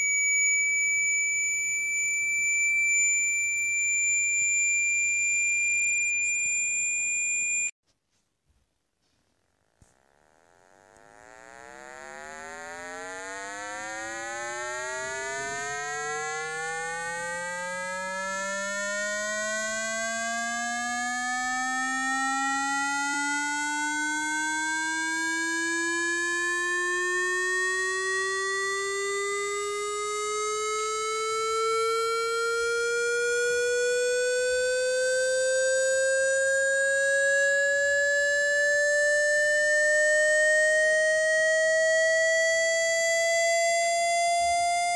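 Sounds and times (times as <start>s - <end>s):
buzzy rising electronic tone: 10.2s - 40.8s.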